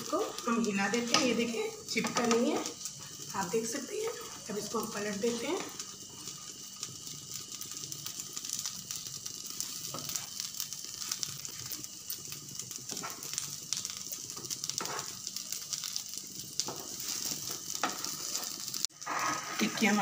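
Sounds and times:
food sizzling in oil: 0:00.0 - 0:20.0.

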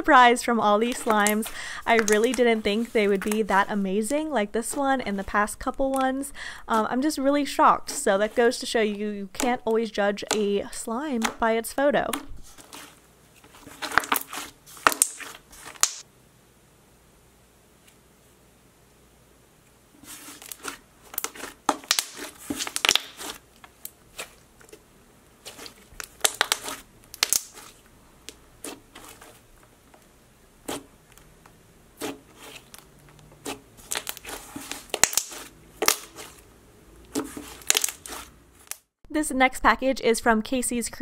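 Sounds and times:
slime squeezed by hand crackling: 0:20.1 - 0:24.3, 0:25.5 - 0:27.8, 0:32.0 - 0:36.4, 0:37.2 - 0:38.8.

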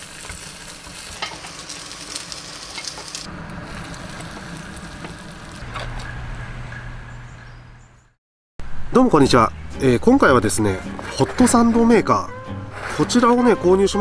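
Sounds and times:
food sizzling: 0:00.0 - 0:06.2.

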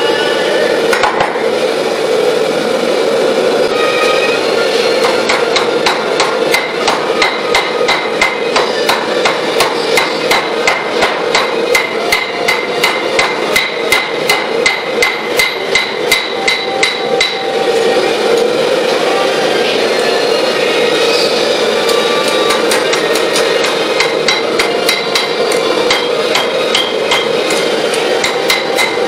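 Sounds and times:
hammer striking steel on anvil: 0:05.0 - 0:17.6, 0:23.6 - 0:29.0.

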